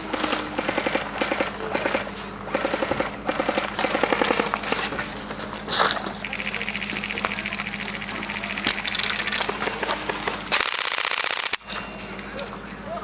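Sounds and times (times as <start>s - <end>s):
airsoft guns firing full-auto: 0.0s - 4.6s, 6.2s - 11.6s.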